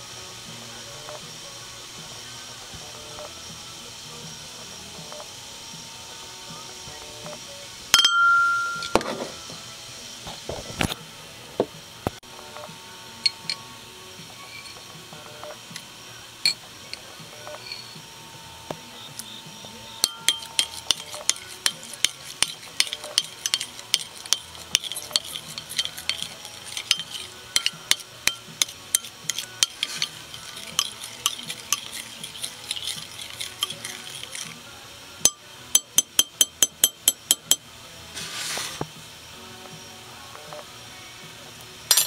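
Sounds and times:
spoon clinking against glass bowl: 0:07.9 - 0:09.1, 0:13.2 - 0:13.6, 0:20.0 - 0:34.6, 0:35.2 - 0:37.6
spoon tapping: 0:08.0 - 0:09.1, 0:20.0 - 0:34.6, 0:35.2 - 0:37.6
spoon scraping bowl: 0:14.4 - 0:14.8, 0:17.4 - 0:18.0, 0:20.0 - 0:34.6.

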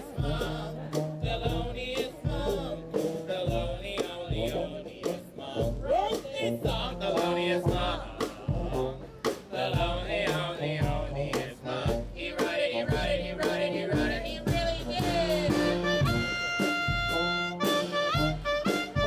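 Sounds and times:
bass line: 0:00.0 - 0:19.0.

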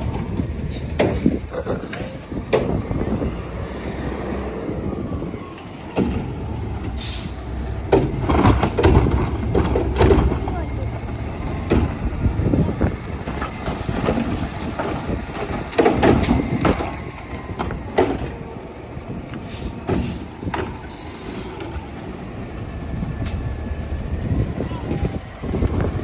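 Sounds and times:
garbage truck engine rumbling: 0:00.0 - 0:26.0
metal clanks and knocks: 0:07.8 - 0:10.7, 0:13.2 - 0:18.4.

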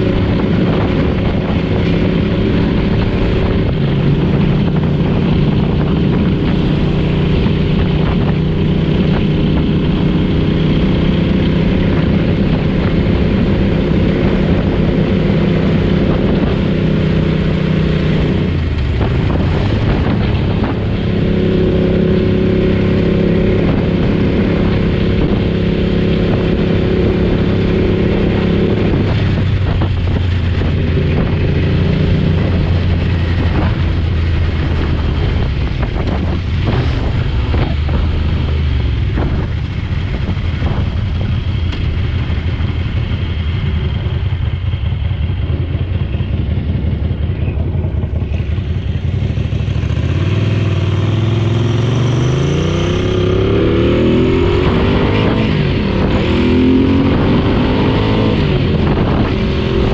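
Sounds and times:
motorcycle engine running: 0:00.0 - 0:59.9
wind rushing past microphone: 0:00.0 - 0:59.9.

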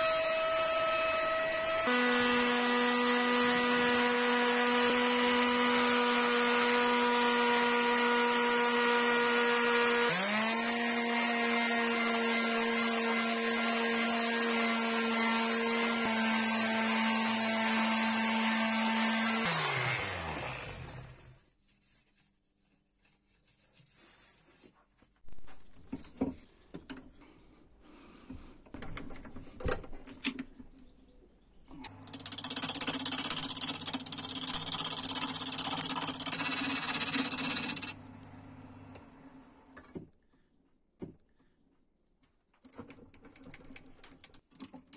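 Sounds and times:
turning tool cutting wood: 0:00.0 - 0:21.4, 0:31.9 - 0:38.1
wood lathe humming: 0:00.0 - 0:21.4, 0:32.1 - 0:38.0
palm sander spinning down: 0:13.9 - 0:21.4
knocks and handling sounds: 0:21.8 - 0:31.9, 0:39.8 - 0:44.9.

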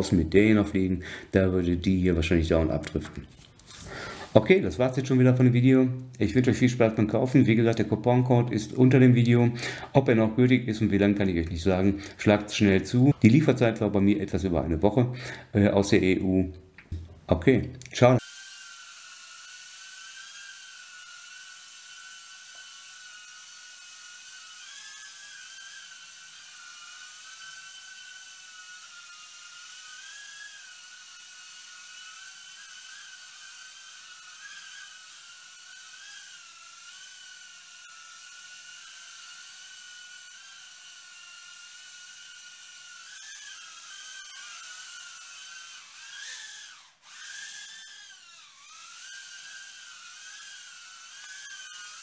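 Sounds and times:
quadcopter motors whining: 0:18.1 - 0:52.0.

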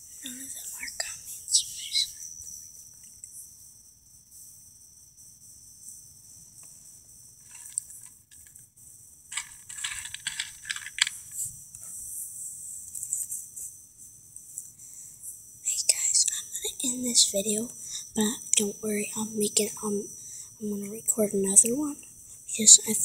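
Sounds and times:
crickets trilling: 0:00.0 - 0:23.0.

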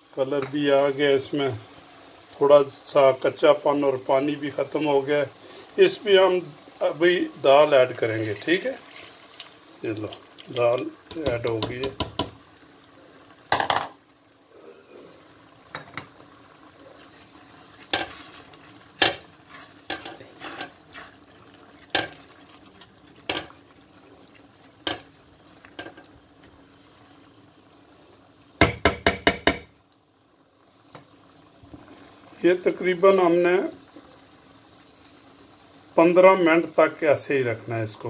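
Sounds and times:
faint sizzle: 0:00.0 - 0:38.0
metal spoon scraping a pan: 0:17.9 - 0:21.2.

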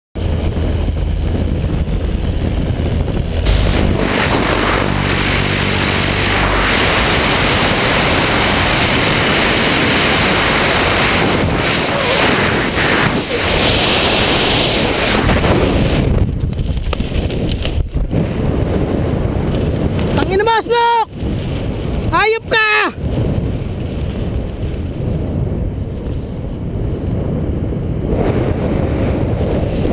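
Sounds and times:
small plane engine droning: 0:00.2 - 0:15.0
wind rushing on microphone: 0:00.2 - 0:29.9.

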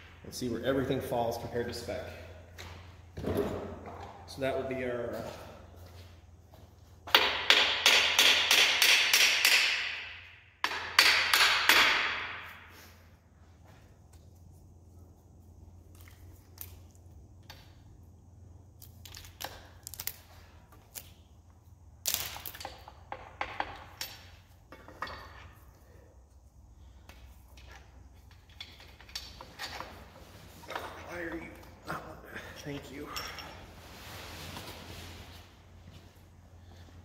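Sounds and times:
metal clinks and knocks: 0:22.2 - 0:25.8, 0:27.0 - 0:33.8.

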